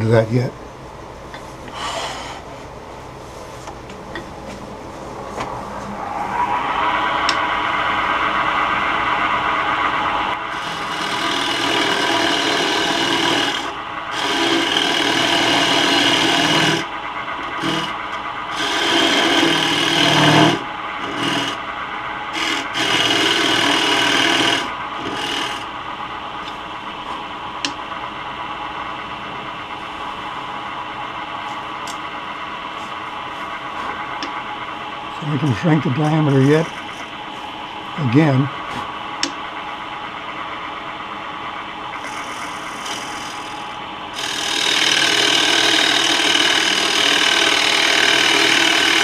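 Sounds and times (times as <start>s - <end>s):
lathe tool scraping wood: 9.4s - 21.7s, 22.3s - 25.7s, 35.4s - 37.1s, 42.0s - 49.0s.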